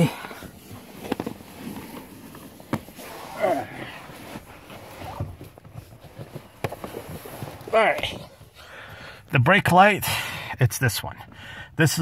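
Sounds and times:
rustling: 0:00.0 - 0:08.6.

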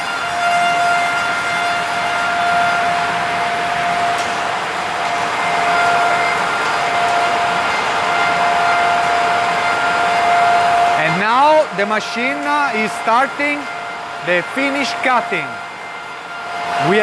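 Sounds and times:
lathe machine whine: 0:00.0 - 0:17.0.

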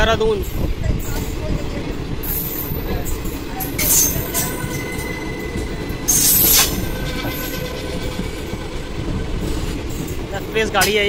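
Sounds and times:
train wheels rumbling on rails: 0:00.0 - 0:11.0
high-pitched wheel screech: 0:03.6 - 0:10.8.

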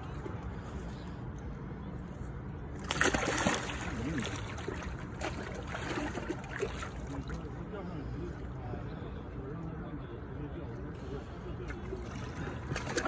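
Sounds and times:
water sloshing: 0:02.7 - 0:07.6, 0:11.7 - 0:13.0
fish splashing in water: 0:02.8 - 0:07.4, 0:11.9 - 0:13.0.

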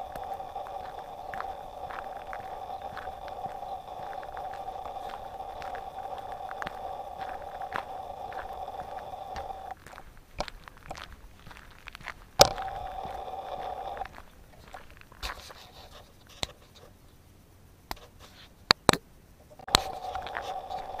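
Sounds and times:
mid-pitched hum: 0:00.0 - 0:18.0, 0:18.9 - 0:21.0.

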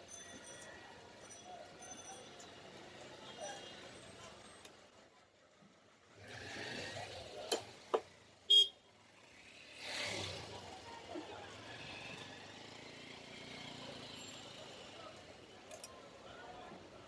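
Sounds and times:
road traffic noise: 0:00.0 - 0:17.0
passing vehicle: 0:06.0 - 0:08.4, 0:09.0 - 0:16.8.

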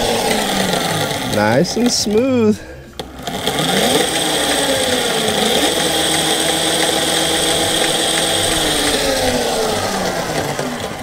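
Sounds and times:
bicycle chain noise: 0:00.0 - 0:11.0
electric motor whine: 0:00.0 - 0:11.0.

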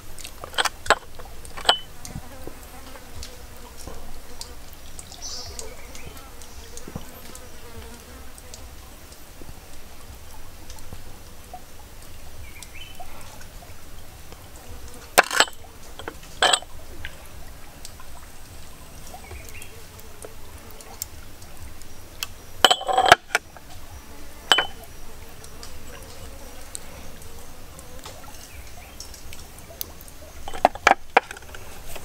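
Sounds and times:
ceramic cup clinking: 0:00.4 - 0:01.9, 0:15.2 - 0:16.7, 0:22.6 - 0:23.4, 0:24.5 - 0:24.8, 0:30.5 - 0:31.0.

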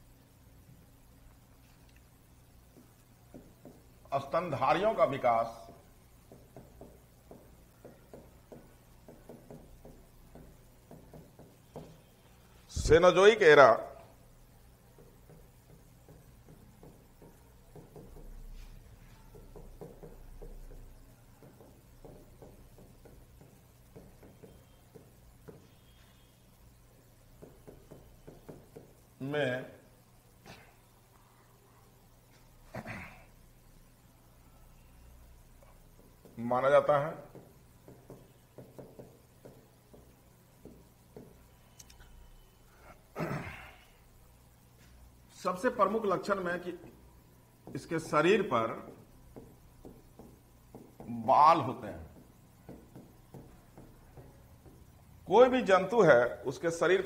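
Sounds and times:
chalk tapping on blackboard: 0:02.6 - 0:12.2, 0:14.8 - 0:26.4, 0:27.0 - 0:29.1, 0:35.6 - 0:41.6, 0:45.7 - 0:55.8.

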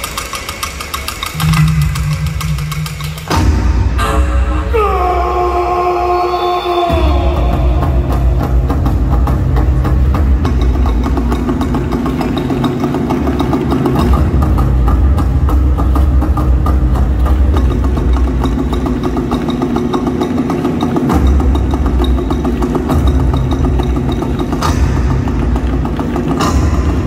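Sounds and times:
large wooden drums beaten: 0:01.0 - 0:27.0
deep drum rumble: 0:01.4 - 0:05.9, 0:06.7 - 0:20.2.

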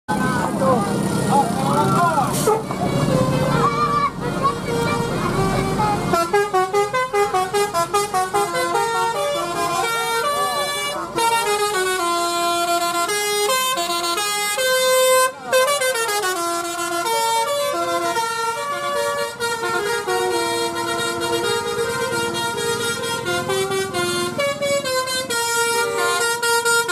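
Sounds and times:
multi-tone bus horn melody: 0:00.1 - 0:26.9.

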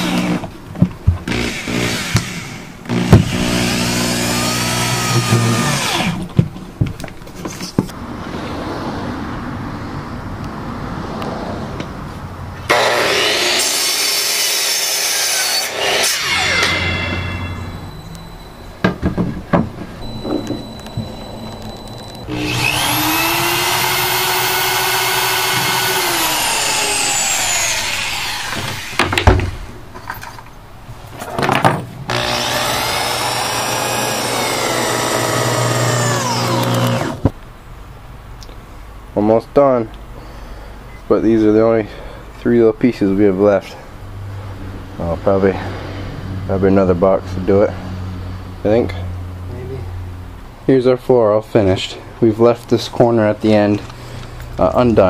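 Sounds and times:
miter saw cutting wood: 0:00.0 - 0:00.5, 0:01.2 - 0:06.3, 0:12.7 - 0:17.6, 0:20.8 - 0:29.7, 0:32.1 - 0:37.3
electric drill running: 0:01.3 - 0:06.2, 0:21.6 - 0:29.2, 0:32.1 - 0:37.3.

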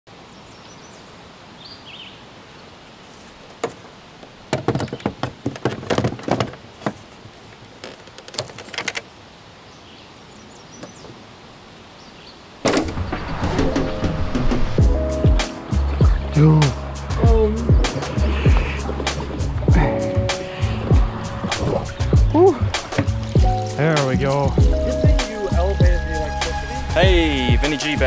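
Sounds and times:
music: 0:13.2 - 0:28.0.

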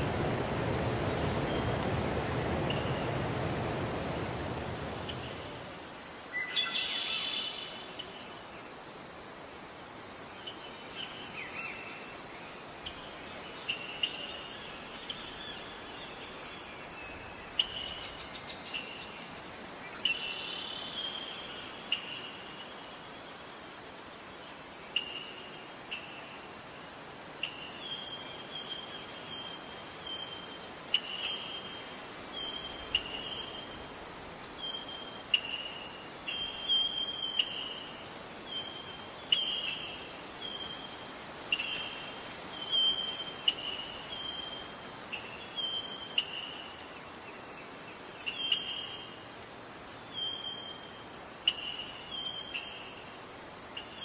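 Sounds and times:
stream rushing: 0:00.0 - 0:06.1
insect chorus: 0:00.0 - 0:54.0.

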